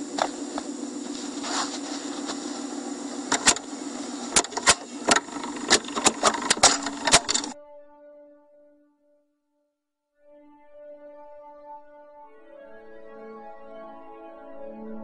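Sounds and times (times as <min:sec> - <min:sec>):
steady electrical hum: 0:00.0 - 0:07.6.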